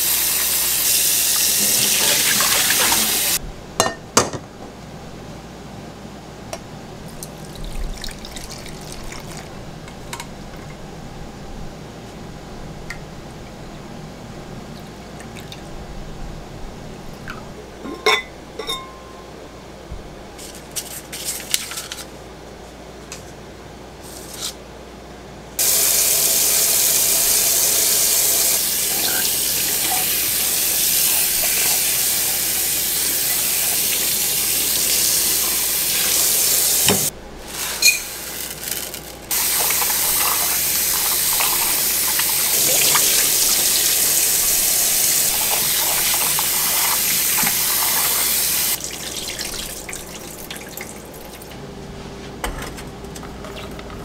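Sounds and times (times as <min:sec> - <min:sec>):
tap water running into pot: 0:00.0 - 0:03.4, 0:07.5 - 0:09.5, 0:25.6 - 0:51.5.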